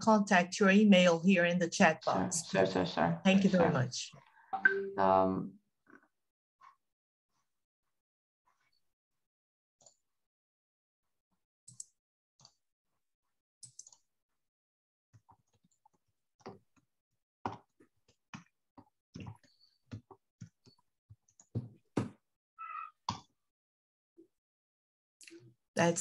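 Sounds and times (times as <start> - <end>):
brief tone: 4.6 - 5.2.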